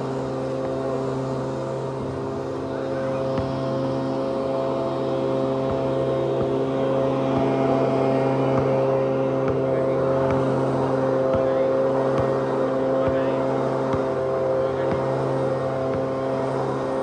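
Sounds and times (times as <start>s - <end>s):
steady engine drone: 0.0s - 17.0s
basketball bouncing on asphalt: 5.7s - 6.6s, 8.5s - 8.8s, 9.4s - 10.6s, 11.3s - 12.4s, 13.0s - 14.1s.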